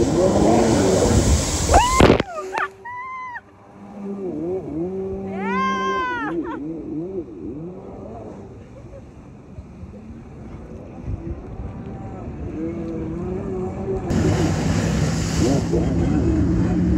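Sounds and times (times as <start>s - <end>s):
water spray blasting: 0.0s - 2.9s, 14.1s - 16.9s
jet ski engine revving: 0.0s - 16.9s.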